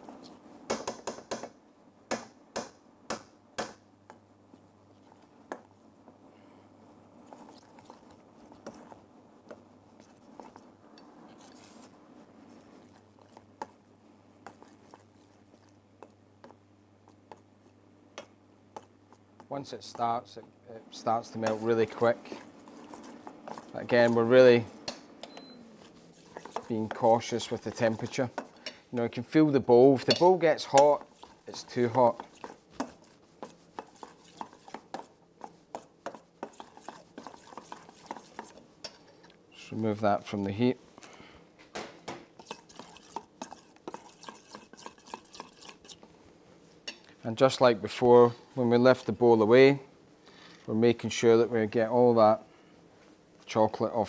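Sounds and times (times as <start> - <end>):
low steady hum: 1.6 - 54.0
metal spoon scraping bowl: 11.3 - 11.9, 21.2 - 29.2, 30.0 - 39.4, 42.4 - 46.1.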